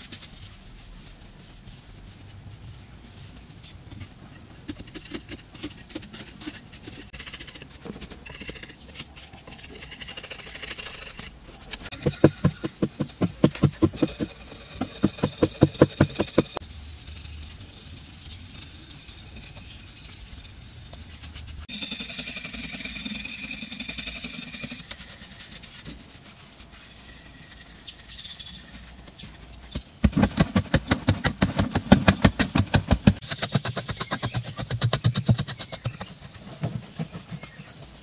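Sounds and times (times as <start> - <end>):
hand tool scraping sandstone: 4.4 - 16.6, 18.5 - 28.0, 30.0 - 38.0.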